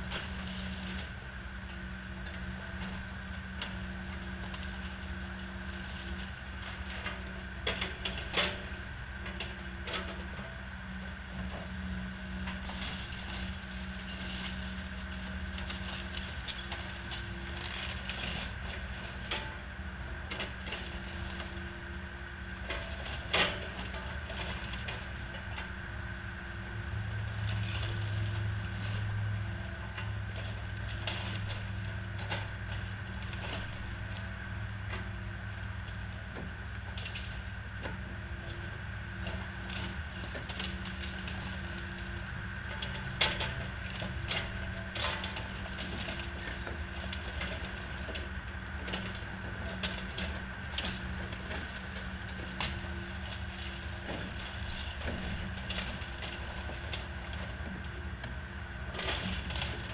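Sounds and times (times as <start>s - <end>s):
excavator diesel engine: 0.0s - 59.9s
wood cracking and crunching: 42.8s - 57.6s, 58.9s - 59.9s.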